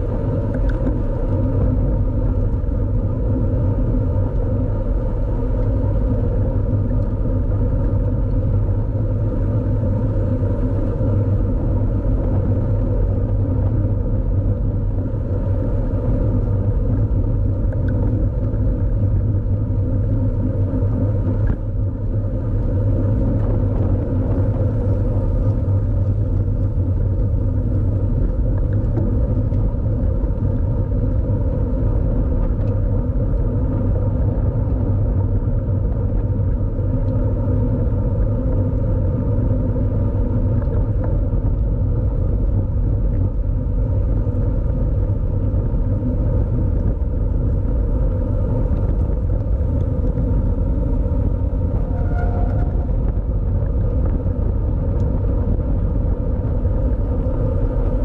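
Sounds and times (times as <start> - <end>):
road and tyre noise: 0.0 - 58.0
wind rumble on microphone: 0.0 - 58.0.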